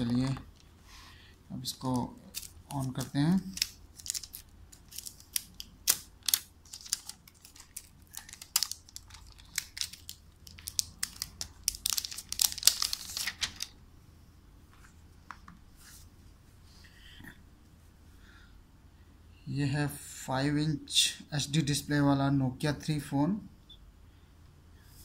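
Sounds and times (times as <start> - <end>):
plastic film crinkling: 1.8 - 13.8.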